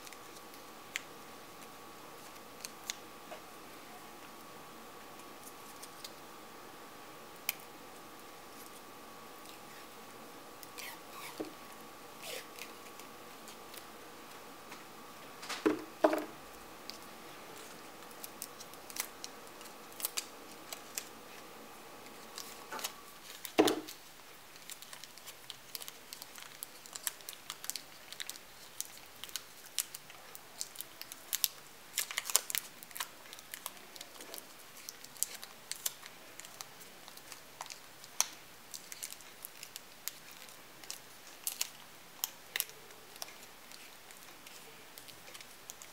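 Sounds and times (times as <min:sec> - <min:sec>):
tape crinkles and clicks: 0:00.0 - 0:03.6, 0:04.2 - 0:06.3, 0:07.3 - 0:45.9.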